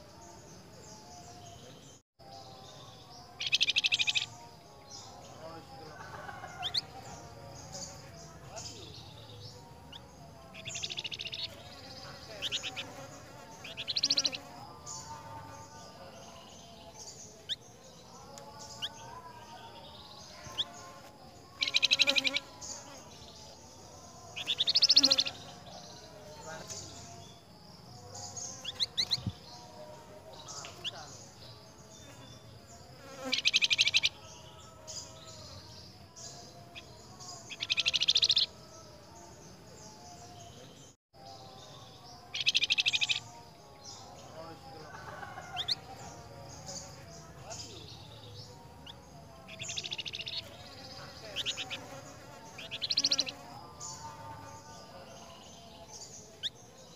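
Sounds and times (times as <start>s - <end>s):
songbirds chirping: 0.0s - 56.9s
songbirds repeating high notes: 0.8s - 15.1s, 36.2s - 38.6s, 41.4s - 44.4s.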